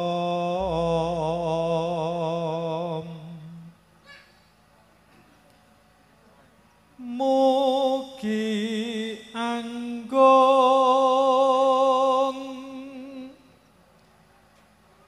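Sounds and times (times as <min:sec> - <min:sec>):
man chanting a sung prayer: 0:00.0 - 0:03.7, 0:07.0 - 0:13.4.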